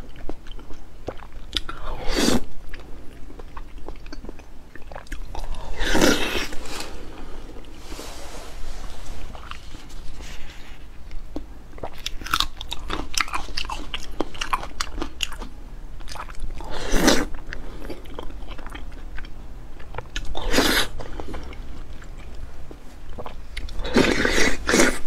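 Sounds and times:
wet chewing with mouth clicks: 0:00.0 - 0:07.8, 0:09.4 - 0:25.0
slurps of saucy food: 0:20.5 - 0:21.0.

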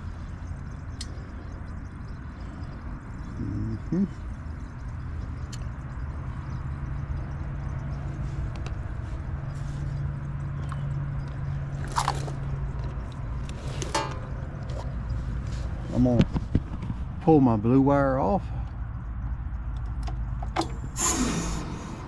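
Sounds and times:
heat pump humming: 0:00.0 - 0:22.0.

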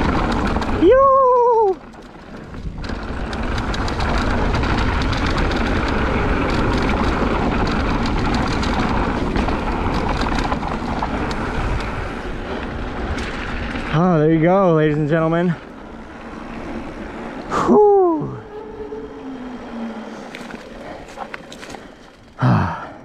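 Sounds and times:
tyres on dirt and stones: 0:00.0 - 0:17.5, 0:18.2 - 0:22.7
wind buffeting microphone: 0:00.0 - 0:22.4
bike clicks and rattles: 0:00.0 - 0:22.8.

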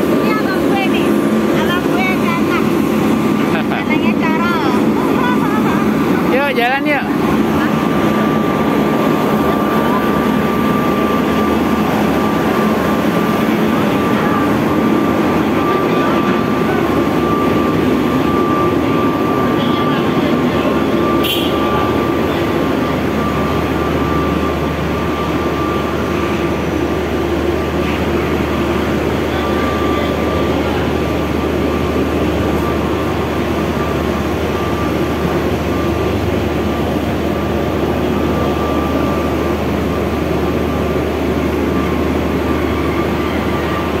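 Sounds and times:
ferry engines droning: 0:00.0 - 0:44.0
thin steady whine: 0:00.0 - 0:44.0.

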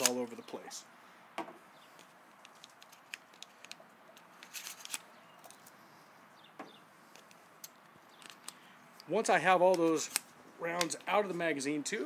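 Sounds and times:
shotgun metallic clicks: 0:00.0 - 0:00.2.

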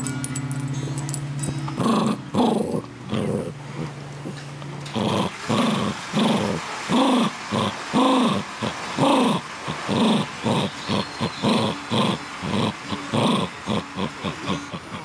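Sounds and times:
dog growling: 0:01.7 - 0:15.0.

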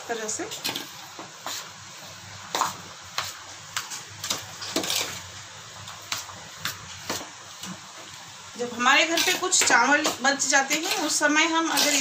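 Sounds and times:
spoon scraping metal bowl: 0:04.2 - 0:05.3, 0:09.0 - 0:12.0.

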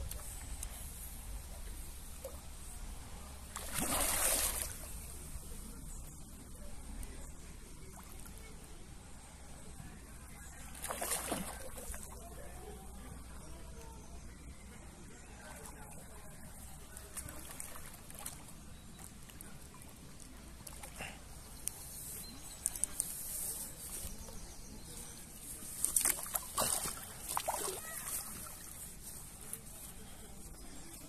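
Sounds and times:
water splashing and sloshing: 0:03.4 - 0:05.1, 0:10.7 - 0:12.1, 0:25.7 - 0:29.4.

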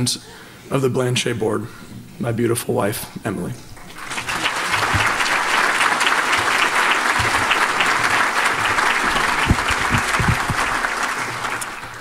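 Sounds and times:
audience applauding: 0:03.8 - 0:12.0.

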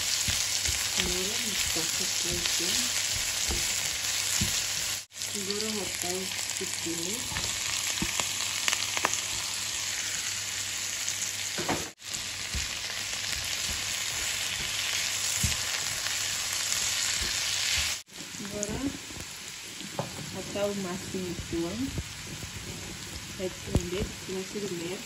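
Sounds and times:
vegetables sizzling in a wok: 0:00.0 - 0:25.0.

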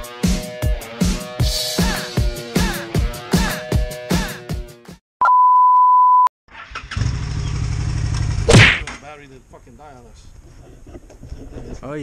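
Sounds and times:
beep tone: 0:05.2 - 0:06.3
motorcycle engine rumbling: 0:06.6 - 0:08.5.

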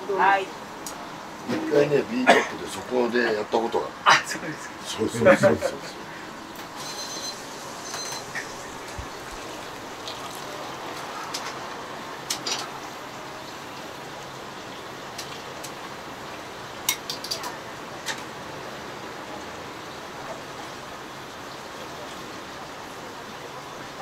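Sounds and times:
kitchen background hiss: 0:00.0 - 0:24.0.

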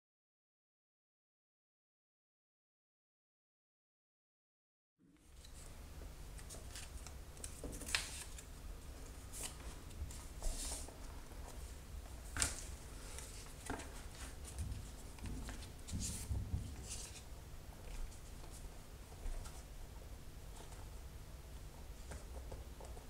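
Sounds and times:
low steady hum: 0:05.0 - 0:23.0
paper strips rustling: 0:05.3 - 0:11.6, 0:12.3 - 0:18.6.

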